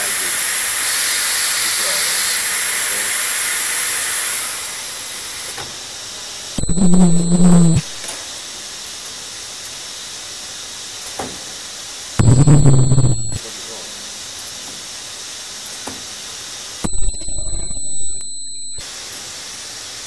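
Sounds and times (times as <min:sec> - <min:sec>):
loud steady ultrasonic buzz: 0:06.6 - 0:08.0, 0:12.2 - 0:13.4, 0:16.8 - 0:19.0.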